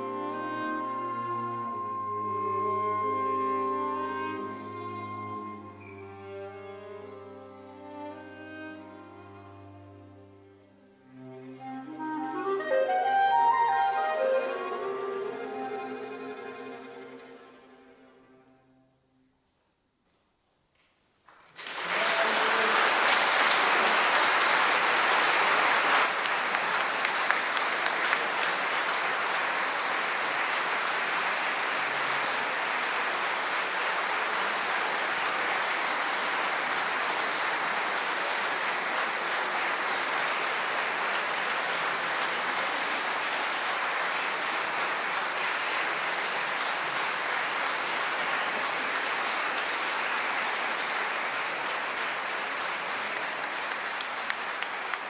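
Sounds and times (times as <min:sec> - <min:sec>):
audience applauding: 0:21.3 - 0:55.0.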